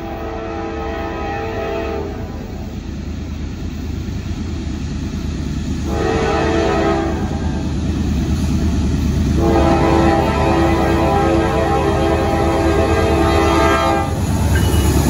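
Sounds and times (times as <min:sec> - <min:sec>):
train air horn blasts: 0:00.0 - 0:02.3, 0:05.8 - 0:07.5, 0:09.4 - 0:14.8
train rumbling: 0:00.0 - 0:15.0.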